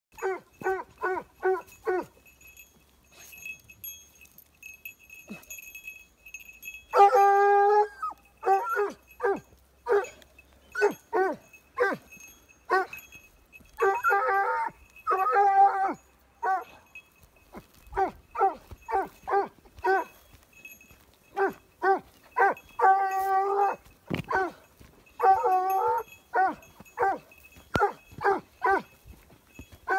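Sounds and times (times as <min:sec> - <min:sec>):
dog yelping barks: 0:00.2 - 0:02.2, 0:06.9 - 0:13.0, 0:13.8 - 0:16.9, 0:17.9 - 0:20.2, 0:21.3 - 0:29.0
dog howling: 0:07.0 - 0:10.2, 0:13.8 - 0:16.7, 0:21.4 - 0:24.6, 0:25.2 - 0:27.2.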